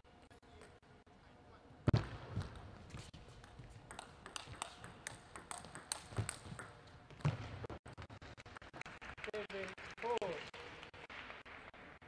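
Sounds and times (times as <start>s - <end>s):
table tennis ball clicking: 3.9s - 6.8s.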